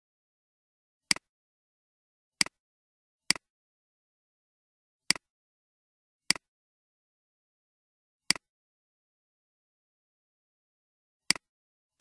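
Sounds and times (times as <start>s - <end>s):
computer mouse clicks: 2.4s - 2.6s.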